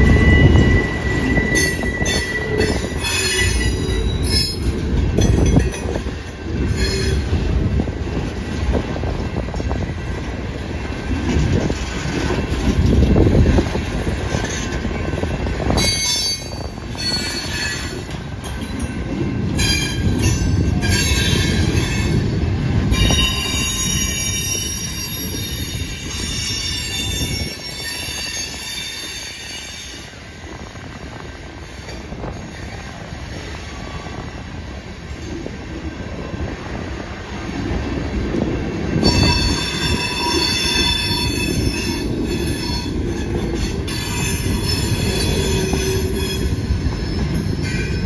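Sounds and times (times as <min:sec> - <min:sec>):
metallic wheel squeal: 0:00.0 - 0:05.6, 0:06.6 - 0:07.4, 0:15.8 - 0:18.1, 0:23.0 - 0:30.1, 0:39.0 - 0:48.0
freight train wheels rumbling: 0:00.0 - 0:48.0.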